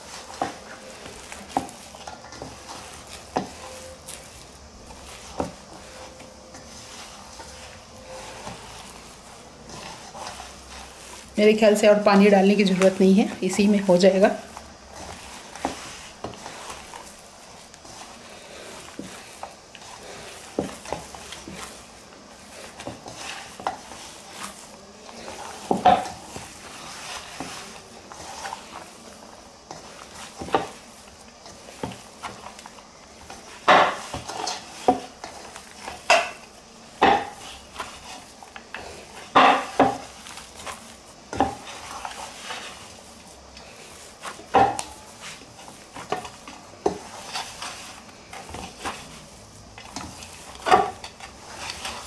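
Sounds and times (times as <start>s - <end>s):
hands kneading dough: 0.0s - 52.0s.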